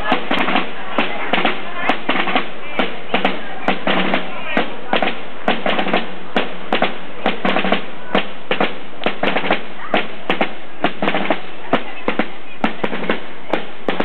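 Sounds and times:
marching snare drums: 0.0s - 14.0s.

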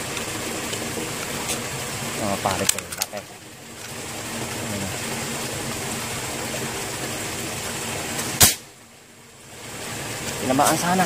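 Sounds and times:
steady background noise: 0.0s - 11.0s
air rifle shot: 8.4s - 8.7s.

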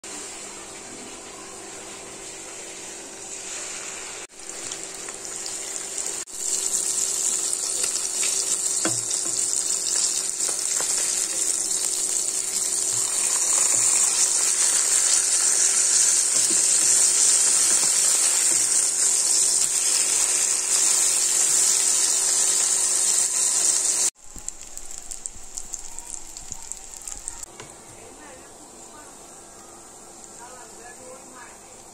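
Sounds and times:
fish sizzling in hot oil: 2.2s - 27.5s.

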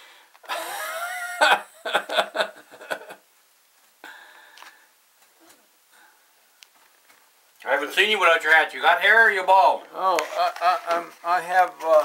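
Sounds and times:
man laughing: 0.5s - 3.2s, 10.3s - 11.1s.

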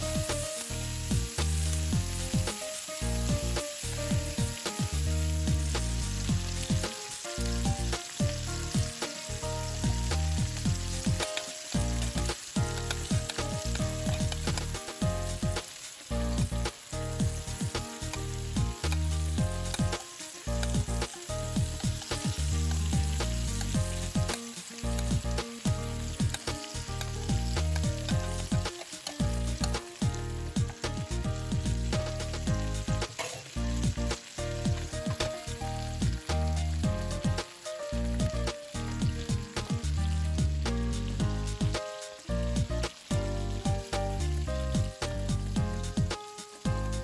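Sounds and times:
meat sizzling in butter: 0.0s - 47.0s
metal spoon scraping pan: 33.1s - 33.5s.

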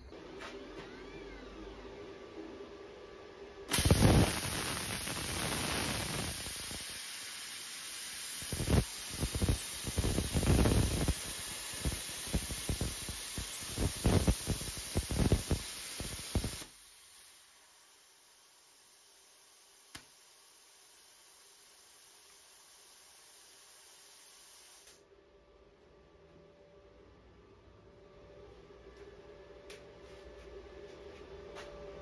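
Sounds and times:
plasma cutter hissing and crackling: 3.7s - 25.0s.

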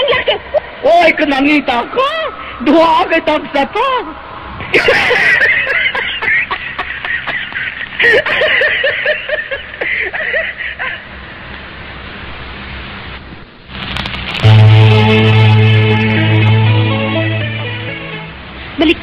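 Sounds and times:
laughter in quick bursts: 0.0s - 0.7s, 4.6s - 11.1s
quiet hiss: 0.0s - 19.0s.

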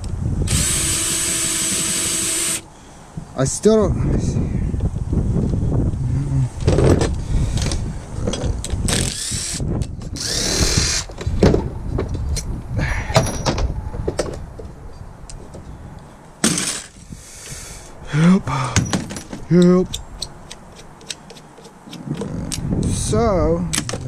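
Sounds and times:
metallic clicks and knocks: 18.8s - 22.6s.

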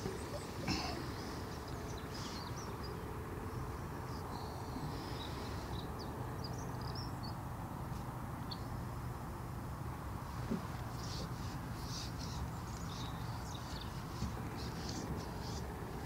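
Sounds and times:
faint bird chirps: 0.0s - 7.4s.

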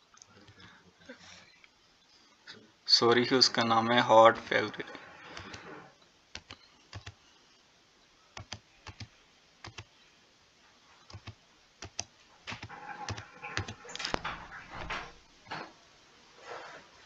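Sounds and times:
computer keyboard typing: 5.3s - 5.7s, 6.3s - 7.2s, 8.4s - 9.9s, 11.1s - 14.2s.

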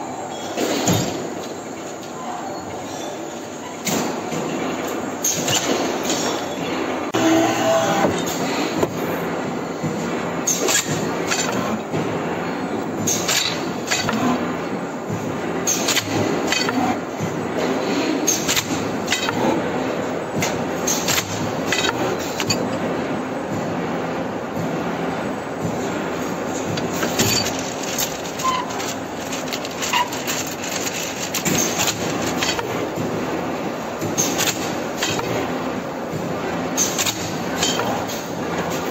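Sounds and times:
machine rumbling: 7.1s - 38.9s
machine mechanical rattle: 25.8s - 33.2s.

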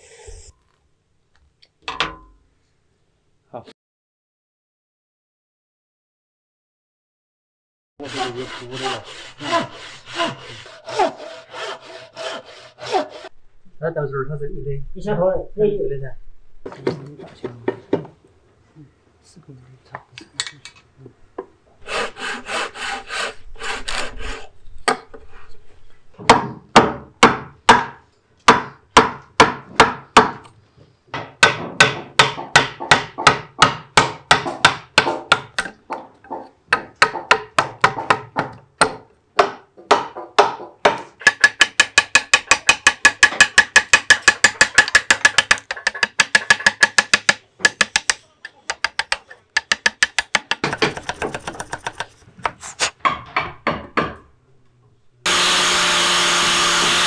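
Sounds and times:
chisel scraping wood: 8.0s - 13.4s, 41.2s - 53.0s
steel chisel striking wood: 31.1s - 52.2s.

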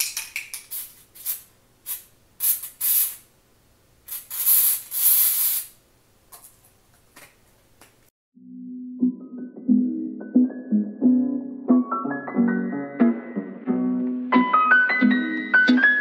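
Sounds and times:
aerosol spray can hissing: 0.6s - 3.2s, 4.1s - 5.8s.

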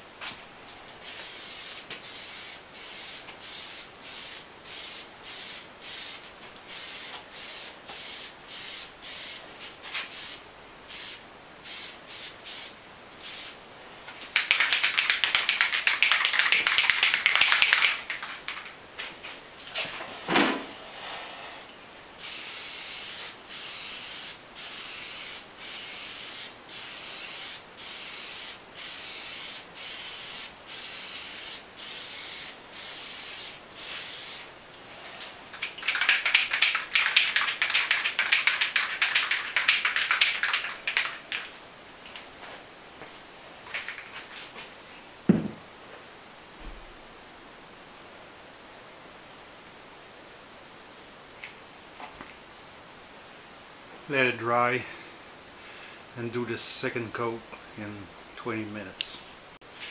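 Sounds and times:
aerosol can spraying: 1.0s - 13.6s, 14.3s - 18.6s, 22.2s - 34.5s, 35.2s - 41.4s.

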